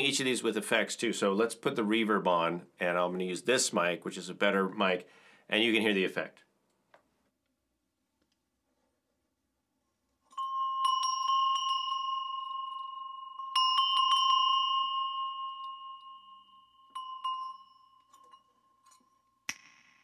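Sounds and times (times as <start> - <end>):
small metal bells shaken: 10.3 - 19.4.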